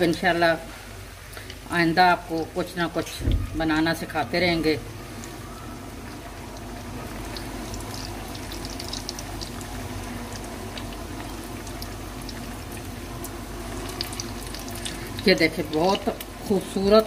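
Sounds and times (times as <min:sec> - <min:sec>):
food deep-frying in oil: 0:00.0 - 0:17.0
small crackles: 0:06.2 - 0:09.7, 0:10.3 - 0:16.3.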